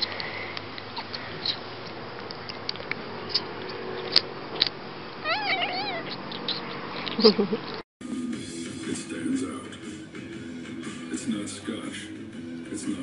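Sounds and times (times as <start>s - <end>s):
kitten mewing: 4.6s - 7.6s.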